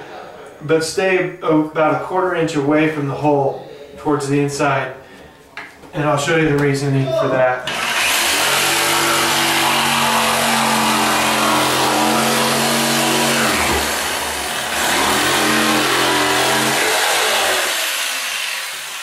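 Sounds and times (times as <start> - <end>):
jigsaw cutting through metal: 7.7 - 19.0.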